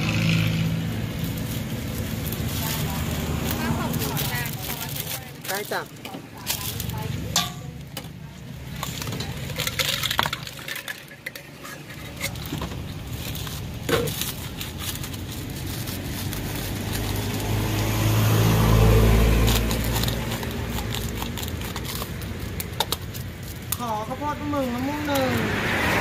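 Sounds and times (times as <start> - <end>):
passing vehicle engine rumble: 0.0 - 26.0
metal spoon clinking in steel bowl: 7.3 - 7.7.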